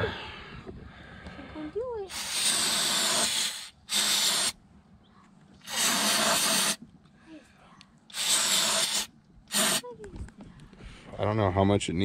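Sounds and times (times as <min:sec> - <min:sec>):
aerosol spray hissing: 0:02.1 - 0:04.6, 0:05.6 - 0:06.8, 0:08.1 - 0:09.8.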